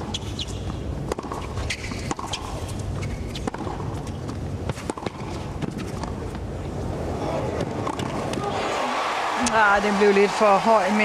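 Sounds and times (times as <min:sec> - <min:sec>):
racket striking tennis ball: 0:00.0 - 0:06.4, 0:07.6 - 0:08.4
crowd and stadium noise: 0:05.6 - 0:11.0.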